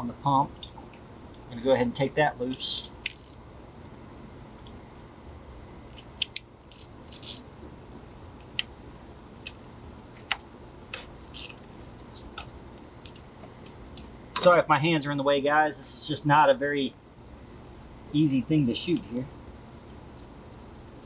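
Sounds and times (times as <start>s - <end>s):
ratchet clicks: 2.9s - 3.4s, 6.0s - 7.4s, 11.3s - 11.6s
ratcheting runs: 3.0s - 3.4s, 6.3s - 7.4s.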